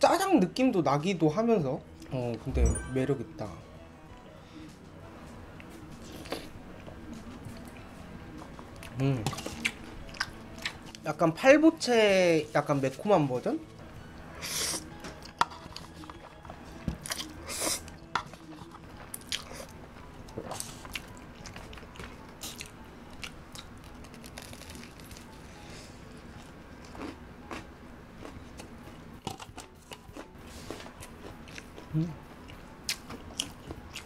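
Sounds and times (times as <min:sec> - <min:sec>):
wet chewing: 0:20.3 - 0:25.3, 0:26.4 - 0:34.0.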